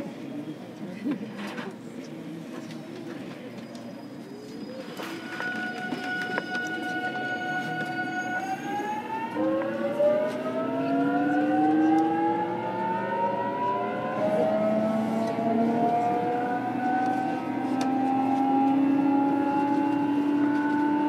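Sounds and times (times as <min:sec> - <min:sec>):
electric train motors whining: 0:04.5 - 0:18.8.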